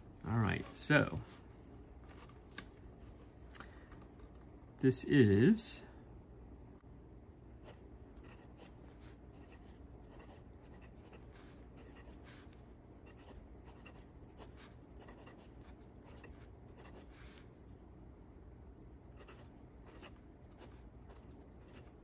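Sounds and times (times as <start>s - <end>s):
fountain pen scratching on paper: 9.4s - 11.2s, 13.1s - 15.5s, 19.2s - 21.9s.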